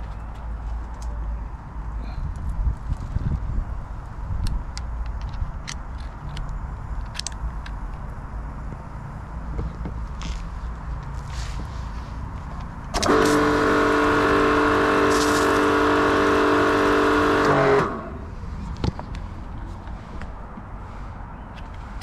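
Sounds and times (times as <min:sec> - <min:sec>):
pressure washer hum and hiss: 0:13.0 - 0:18.1.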